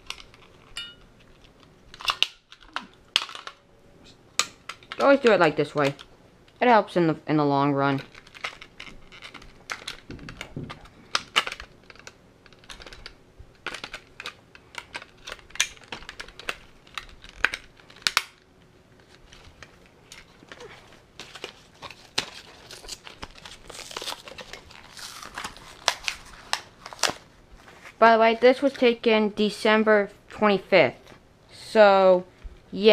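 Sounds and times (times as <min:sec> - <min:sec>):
plastic packaging crinkling: 0:07.9 - 0:28.0.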